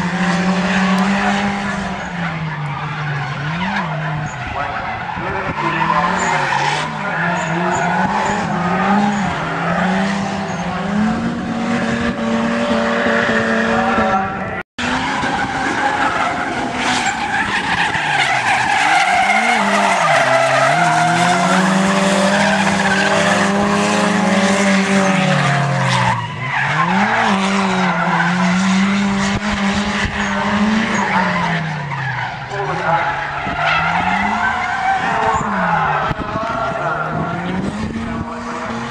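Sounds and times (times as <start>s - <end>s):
car engines revving high: 0.0s - 38.9s
tyre squeal: 15.0s - 28.8s.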